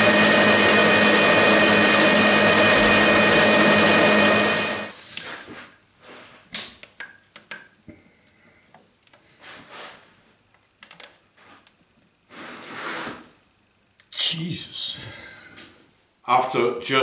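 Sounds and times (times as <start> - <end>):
rush of noise: 0.0 - 4.9.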